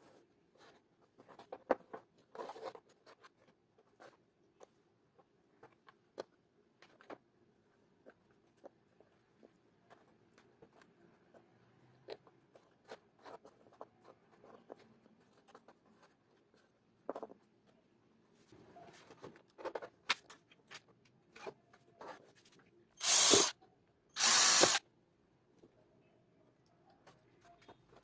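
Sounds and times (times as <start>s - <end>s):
cordless drill running: 23.0s - 23.5s, 24.2s - 24.8s.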